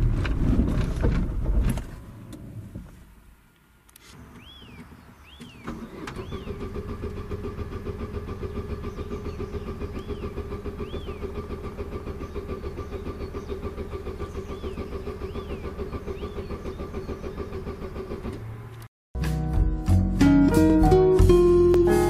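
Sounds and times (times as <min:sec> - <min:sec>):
car engine cranking: 0:04.3 - 0:18.9.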